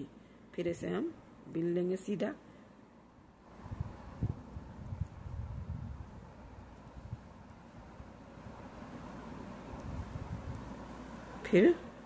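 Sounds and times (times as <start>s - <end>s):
knitting needles and yarn rustling: 3.4s - 12.0s.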